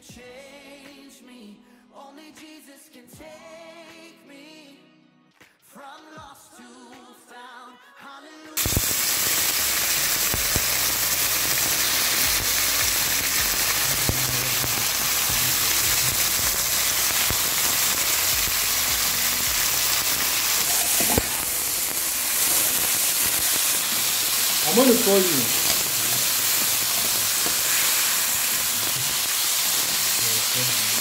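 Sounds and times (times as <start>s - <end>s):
chicken sizzling in oil: 8.6s - 31.0s
metal spoon stirring in pan: 25.5s - 30.2s.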